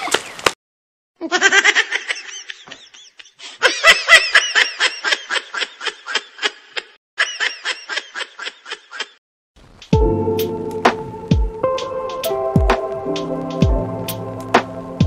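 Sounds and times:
high-pitched laughter: 1.2 - 9.2.

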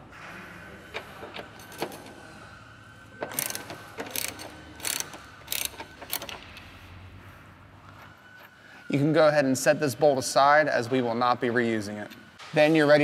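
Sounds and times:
ratcheting wrench clicking: 3.3 - 6.4.

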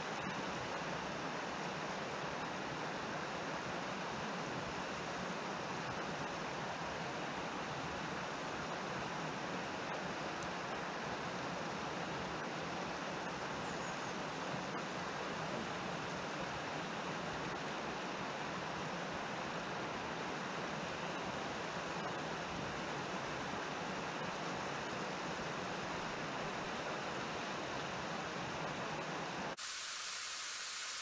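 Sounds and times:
thin high hiss: 29.6 - 31.0.

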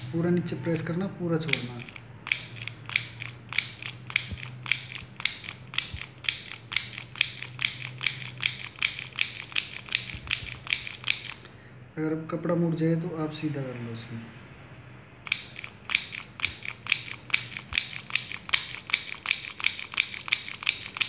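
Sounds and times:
handheld sewing machine clicking: 1.4 - 11.5, 15.2 - 21.0.

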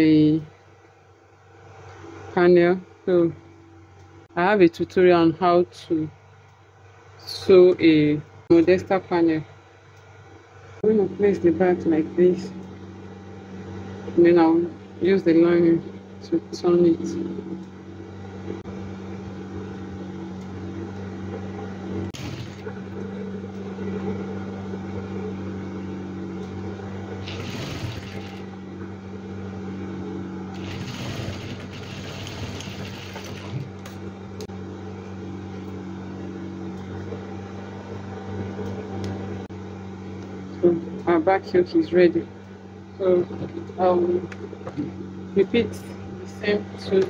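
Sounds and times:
sewing machine running: 22.2 - 23.0, 27.1 - 28.7, 30.5 - 34.0.

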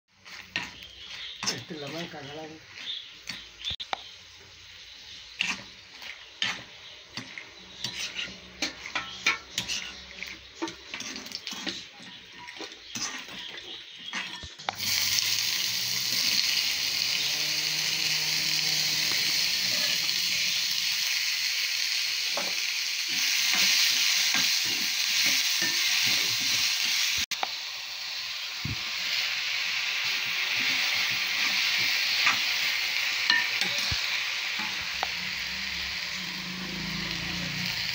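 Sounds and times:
onions sizzling in hot oil: 0.1 - 37.9
spoon scraping in iron pan: 0.2 - 3.5, 5.3 - 15.0, 22.3 - 27.0, 33.2 - 35.1.

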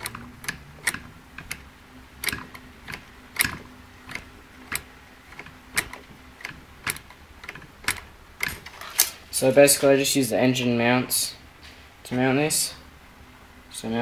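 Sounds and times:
metallic clicks and clacks: 0.0 - 9.2.

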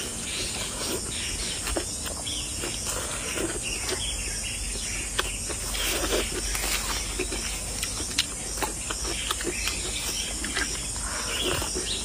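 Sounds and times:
person chewing and slurping: 5.2 - 12.0.

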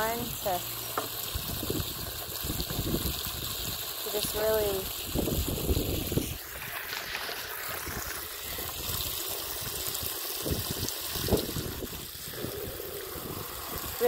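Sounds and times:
wind buffeting microphone: 1.3 - 3.8, 5.1 - 6.7, 7.7 - 14.0.

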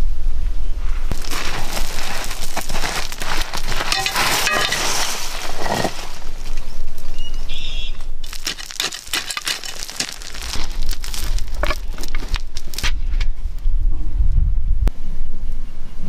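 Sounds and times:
soil and gravel crunching: 0.8 - 13.4.

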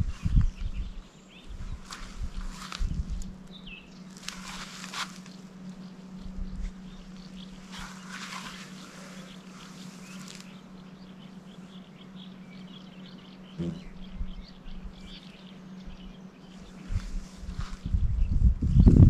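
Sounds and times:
faint bird chirps: 0.0 - 18.5
steady low hum: 0.0 - 19.0
tent fabric rustling: 1.6 - 3.3, 4.1 - 5.5, 7.6 - 10.6, 16.7 - 18.0.

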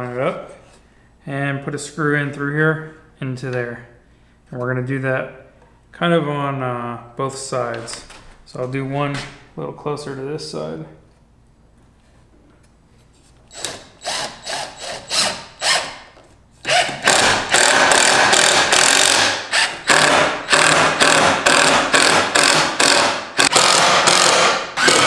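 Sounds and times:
cordless drill driving screw: 13.5 - 16.0, 16.7 - 25.0.

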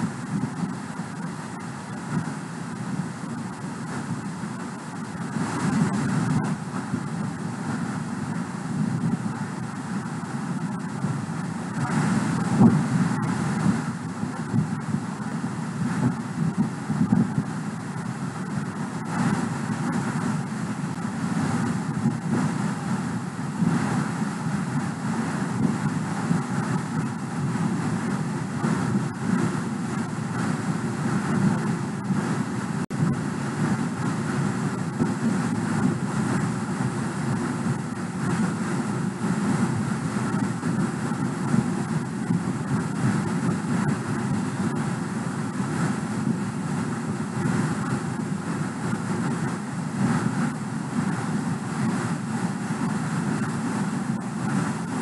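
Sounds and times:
steady rushing noise: 0.0 - 55.0.

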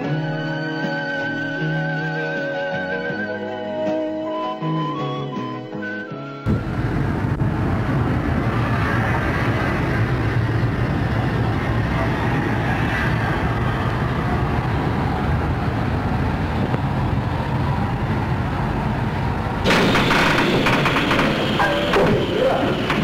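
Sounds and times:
steam locomotive rumbling: 6.5 - 23.0
rapid clatter: 19.7 - 23.0.

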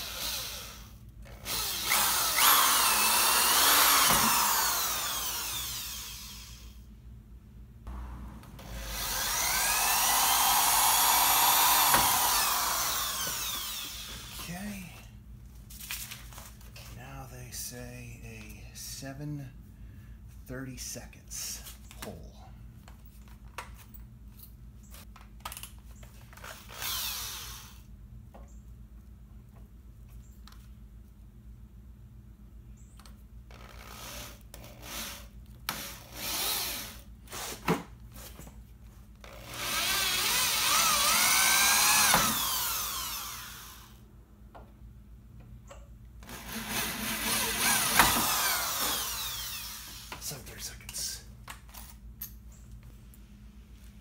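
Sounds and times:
electric drill running: 0.0 - 6.8, 7.9 - 14.5, 26.4 - 27.9, 33.5 - 37.6, 39.2 - 44.0, 46.2 - 50.3.

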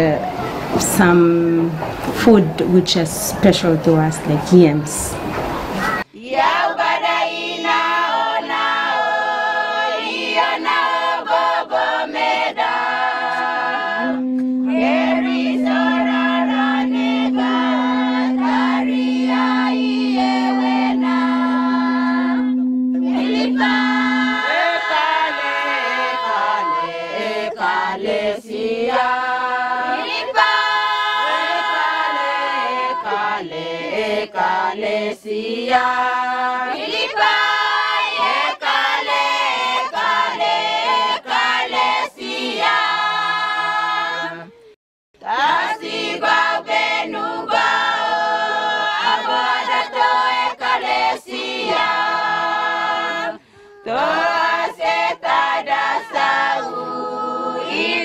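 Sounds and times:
women singing in chorus: 0.0 - 44.6, 45.2 - 58.0
conch-shell trumpet low note: 12.6 - 28.2.

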